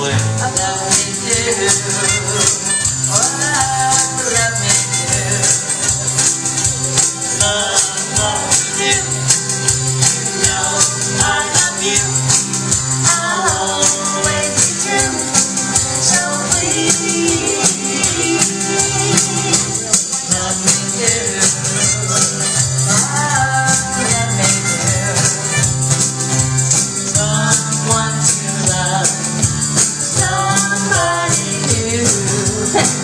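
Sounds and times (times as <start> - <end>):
person singing: 0.0 - 26.0, 26.8 - 33.0
live band playing pop song: 0.0 - 33.0
shaker rhythm: 0.2 - 33.0.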